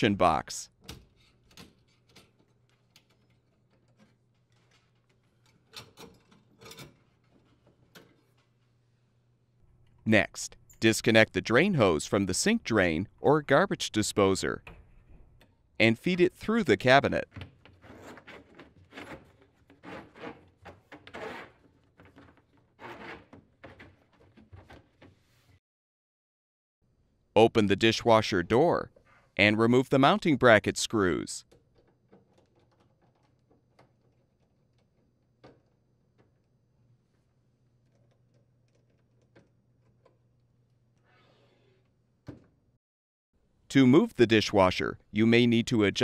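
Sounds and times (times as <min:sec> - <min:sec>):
plastic hose scraping against wood: 0:17.8 - 0:24.0.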